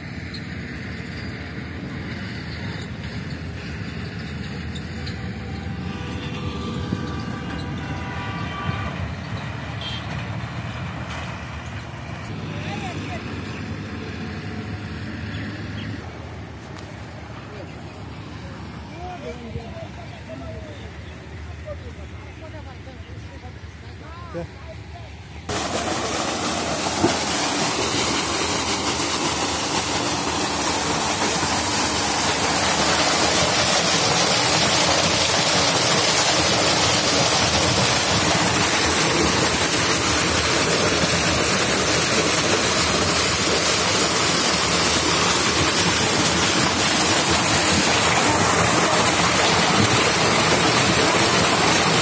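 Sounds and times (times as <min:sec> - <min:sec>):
water gushing into concrete tank: 0:25.5 - 0:52.0.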